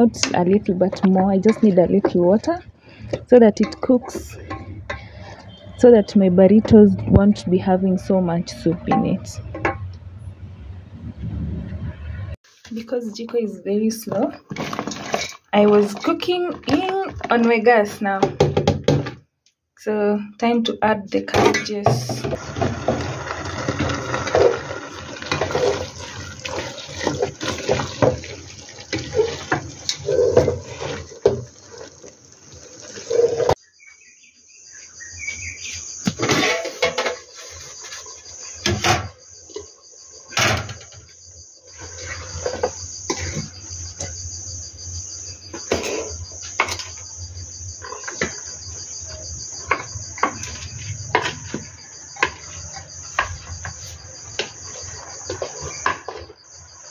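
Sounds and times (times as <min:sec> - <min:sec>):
wooden spoon scraping metal pot: 0:00.0 - 0:05.8, 0:14.0 - 0:17.7, 0:21.5 - 0:33.6
crickets chirping: 0:00.0 - 0:09.8, 0:20.2 - 0:56.9.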